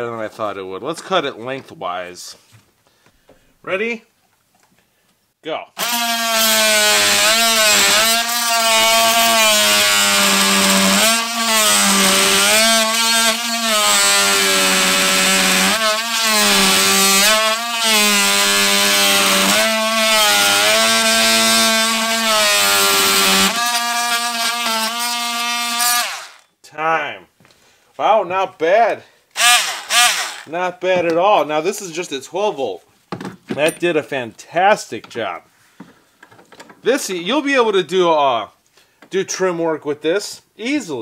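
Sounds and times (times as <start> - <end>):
oscillating saw buzzing through wood: 5.8 - 26.5, 29.4 - 30.5.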